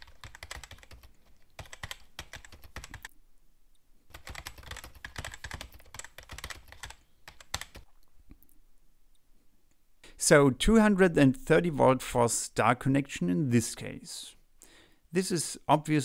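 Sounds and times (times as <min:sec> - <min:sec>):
typing on keyboard: 0:00.0 - 0:03.1, 0:04.1 - 0:07.9.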